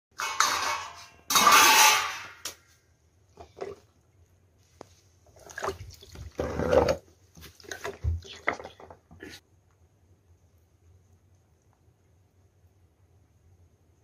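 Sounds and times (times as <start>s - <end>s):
water splashing in metal pot: 5.3s - 6.4s.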